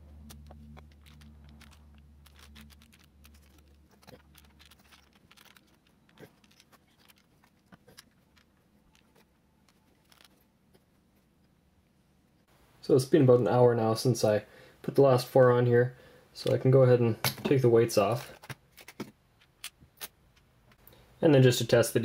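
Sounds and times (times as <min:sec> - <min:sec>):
low hum: 0:00.0 - 0:06.0.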